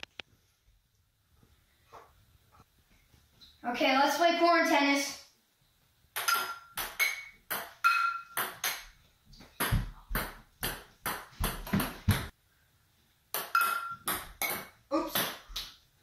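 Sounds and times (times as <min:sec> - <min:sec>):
ping pong ball bouncing on stone: 0:06.2 - 0:08.8, 0:13.3 - 0:15.7.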